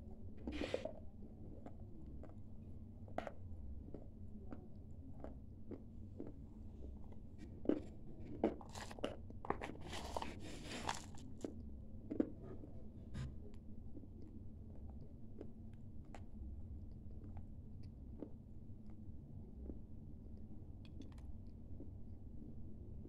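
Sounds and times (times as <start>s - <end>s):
person chewing crunchy clay: 3.1s - 12.7s.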